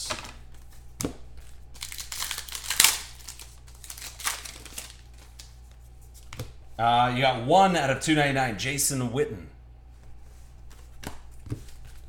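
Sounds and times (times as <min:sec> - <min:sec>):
card pack wrapper tearing: 0:01.8 - 0:05.5.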